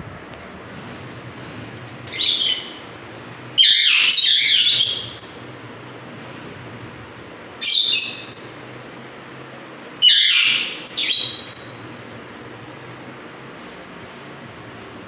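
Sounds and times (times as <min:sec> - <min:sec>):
parakeet screeching: 0:02.1 - 0:02.8, 0:03.6 - 0:05.2, 0:07.6 - 0:08.4, 0:10.0 - 0:11.7.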